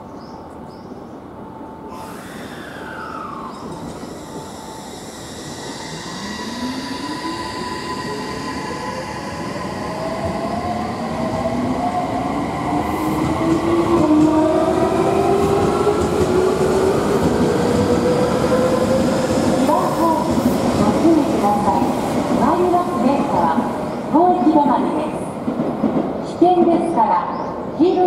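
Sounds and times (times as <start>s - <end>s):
electric train motors whining: 1.9s - 9.2s.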